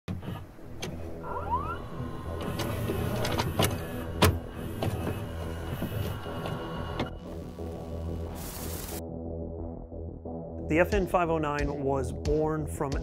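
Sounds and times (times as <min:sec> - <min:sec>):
mechanical clicks and clunks: 0:00.1 - 0:07.4.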